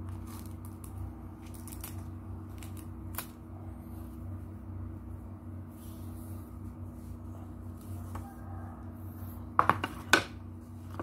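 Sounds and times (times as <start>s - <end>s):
electrical room hum: 0.0s - 11.0s.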